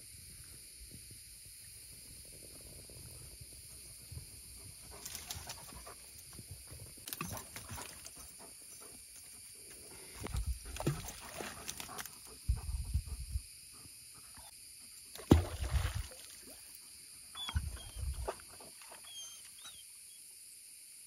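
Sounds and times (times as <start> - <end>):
fish splashing at water surface: 15.2 - 16.6.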